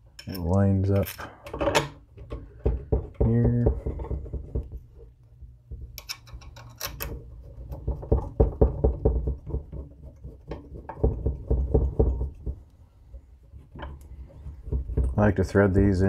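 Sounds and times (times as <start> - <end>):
light metal knocks and rattles: 0.2 - 15.6
metal tool clicks: 6.0 - 7.1.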